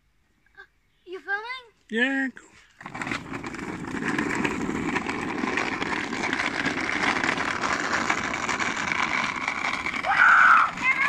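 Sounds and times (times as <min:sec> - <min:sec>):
small wheels rumbling on asphalt: 0:02.6 - 0:11.0.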